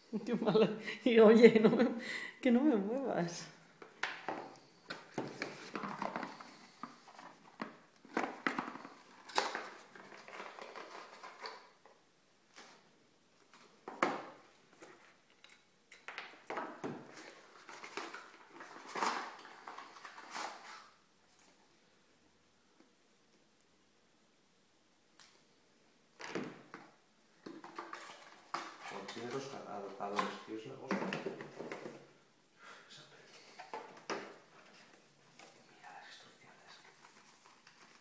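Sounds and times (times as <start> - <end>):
plastic wrap and cardboard rustling: 4.2 - 15.5, 16.4 - 21.6, 27.4 - 32.1, 33.2 - 38.0.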